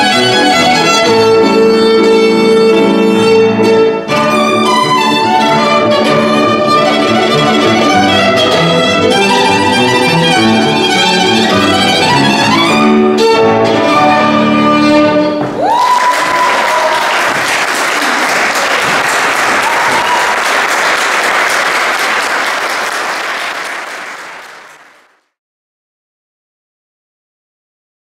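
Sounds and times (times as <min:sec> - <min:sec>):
violin and piano playing: 0:00.0 - 0:15.4
audience applauding: 0:15.5 - 0:25.2.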